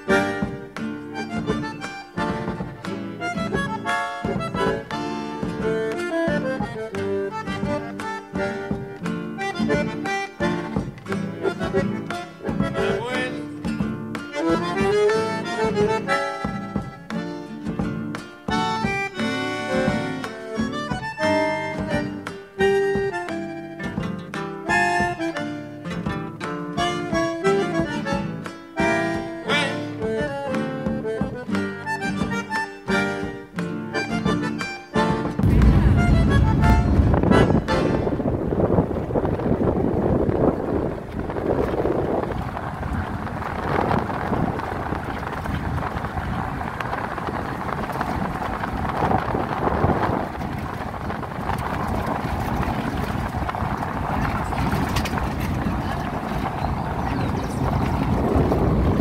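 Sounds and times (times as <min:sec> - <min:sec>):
instrumental background music: 0:00.0 - 0:39.2
wind noise: 0:32.1 - 0:59.0
car engine and tyres rumbling: 0:35.3 - 0:59.0.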